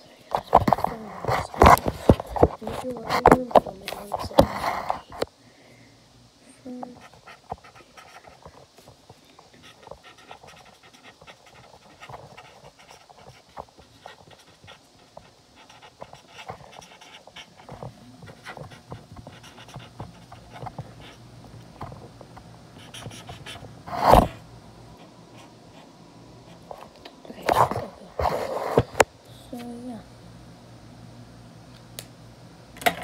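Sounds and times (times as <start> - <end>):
marker scratching on paper: 6.9 - 8.6, 9.6 - 21.2, 22.8 - 24.4.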